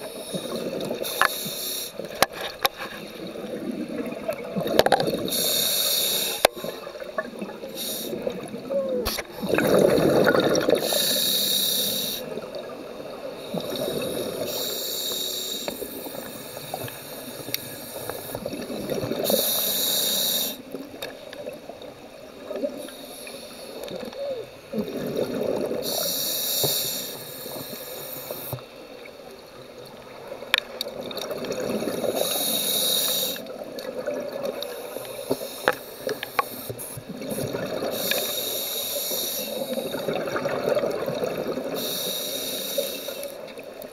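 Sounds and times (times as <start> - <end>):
hissing regulator inhalation: 0.0 - 2.2, 5.2 - 6.8, 7.6 - 8.3, 9.1 - 12.4, 13.5 - 18.6, 19.2 - 20.7, 25.8 - 28.6, 32.0 - 33.5, 34.7 - 40.2, 41.7 - 43.4
bubbling exhalation: 8.1 - 11.0.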